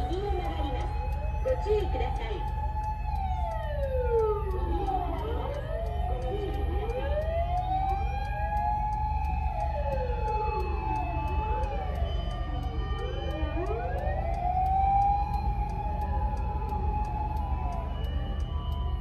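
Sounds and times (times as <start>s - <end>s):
emergency vehicle sirens wailing: 0.0s - 19.0s
low car rumble: 0.0s - 19.0s.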